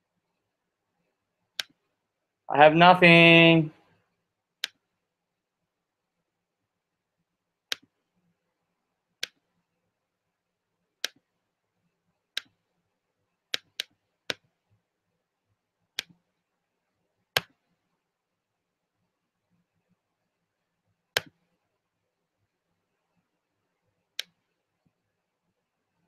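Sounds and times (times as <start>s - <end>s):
computer mouse clicking: 1.5s - 1.9s, 4.6s - 4.8s, 7.7s - 8.0s, 9.2s - 9.5s, 11.0s - 11.3s, 12.3s - 12.6s, 13.5s - 14.5s, 15.9s - 16.3s, 17.3s - 17.6s, 21.1s - 21.5s, 24.1s - 24.6s.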